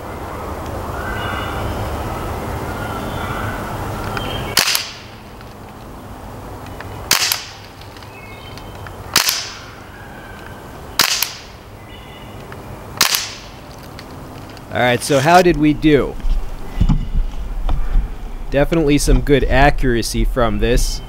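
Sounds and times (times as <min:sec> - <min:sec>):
air rifle shots popping: 0:04.5 - 0:05.2, 0:07.0 - 0:07.8, 0:09.1 - 0:09.7, 0:11.0 - 0:11.6, 0:13.0 - 0:13.6.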